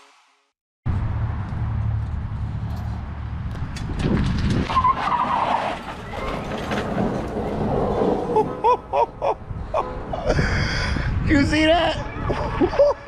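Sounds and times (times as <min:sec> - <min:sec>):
tyres skidding and squealing: 0:04.5 - 0:10.4
golf cart launching: 0:04.7 - 0:08.5.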